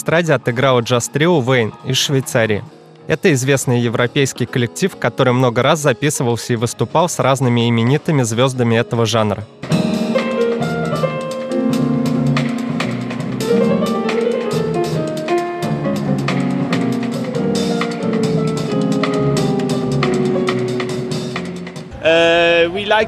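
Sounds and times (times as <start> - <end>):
piano: 0.0 - 23.0
drum kit with cymbals: 9.6 - 21.9
upright double bass: 11.6 - 21.5.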